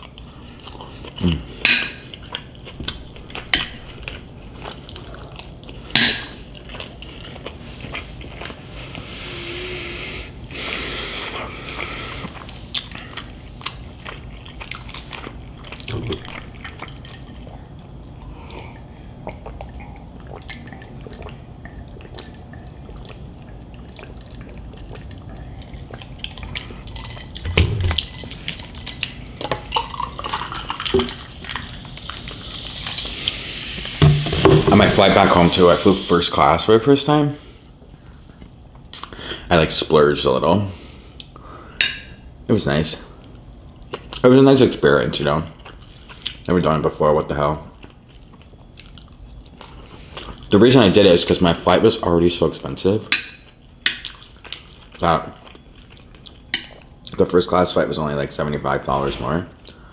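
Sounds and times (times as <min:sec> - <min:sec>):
wet chewing: 0:11.7 - 0:34.0, 0:47.8 - 0:50.5, 0:53.4 - 0:57.2.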